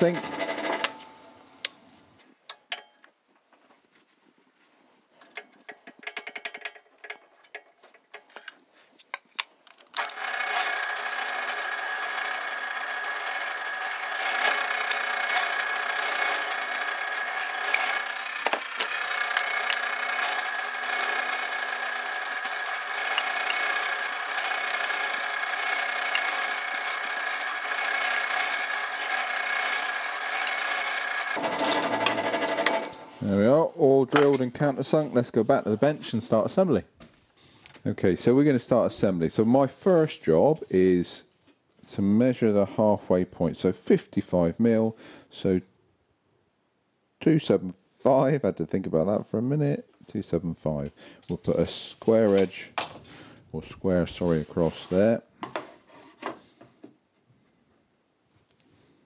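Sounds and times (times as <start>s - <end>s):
drill bit clicks and rattles: 5.2s - 8.6s, 9.7s - 32.9s
drill bit rasping into wood: 10.0s - 32.9s
pillar drill running: 10.0s - 33.2s.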